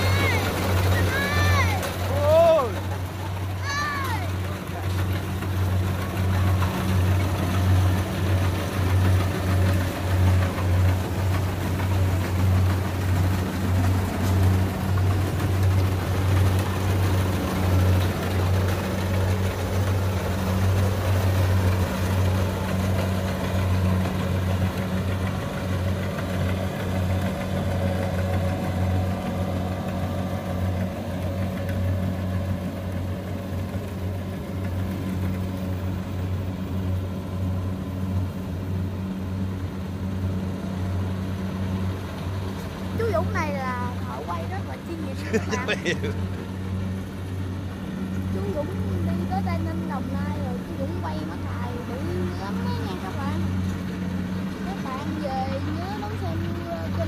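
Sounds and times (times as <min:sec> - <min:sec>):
combine harvester engine droning: 0:00.0 - 0:57.0.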